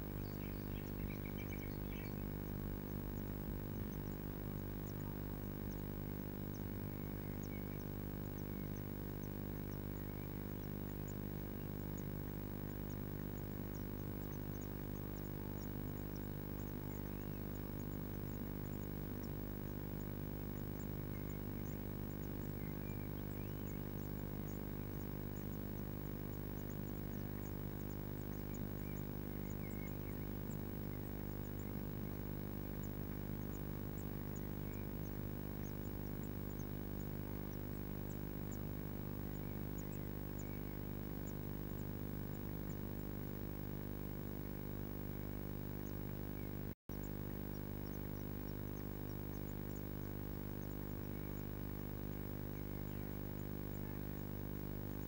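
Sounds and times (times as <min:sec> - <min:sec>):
electrical mains hum: 0:00.0 - 0:55.0
faint high-pitched ticks: 0:00.0 - 0:55.0.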